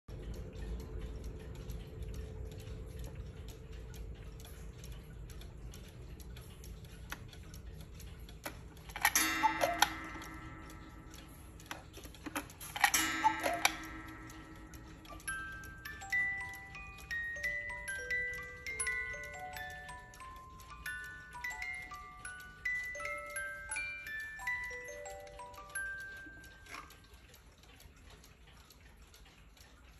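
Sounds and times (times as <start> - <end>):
cuckoo clock ticking: 0.1 - 29.9
clock striking metallic chime: 8.8 - 27.7.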